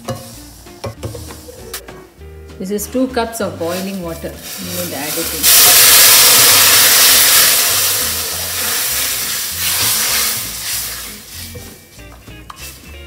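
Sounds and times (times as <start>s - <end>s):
water hissing in hot pan: 3.8s - 11.6s.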